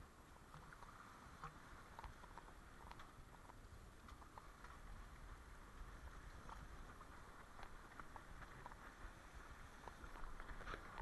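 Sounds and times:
faint low rumble: 0:00.0 - 0:11.0
light ticks: 0:00.5 - 0:04.9, 0:06.2 - 0:09.0.

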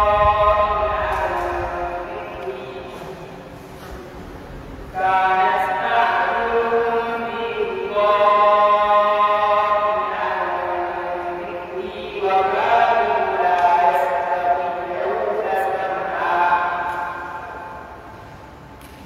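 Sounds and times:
boy chanting melodically: 0:00.0 - 0:03.3, 0:04.9 - 0:18.0.

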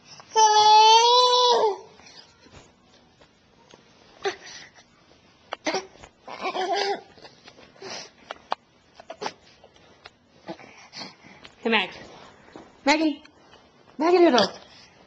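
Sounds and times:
baby cooing: 0:05.6 - 0:07.2.

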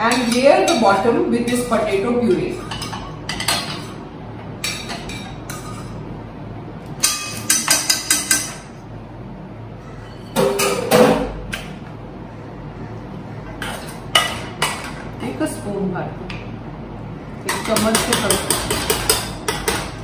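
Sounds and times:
metal utensils and pans clinking: 0:10.1 - 0:11.3.

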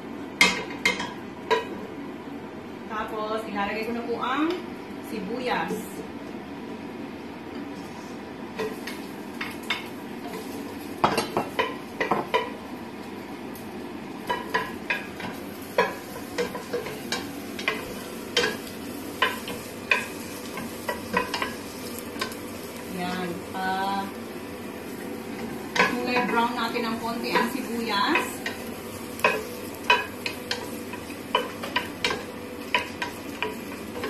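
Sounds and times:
onions sizzling in oil: 0:08.0 - 0:34.0.

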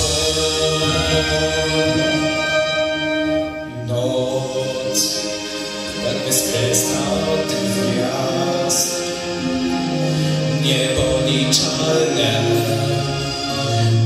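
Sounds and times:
instrumental accompaniment: 0:00.0 - 0:14.0.

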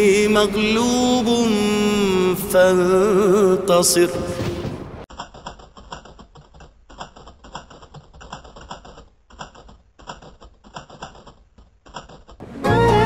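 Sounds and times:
keyboard typing clicks: 0:05.1 - 0:12.4
loud music: 0:12.4 - 0:13.0.

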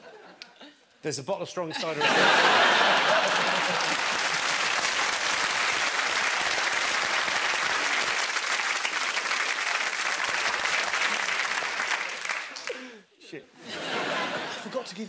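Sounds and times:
audience applauding: 0:02.2 - 0:12.9.

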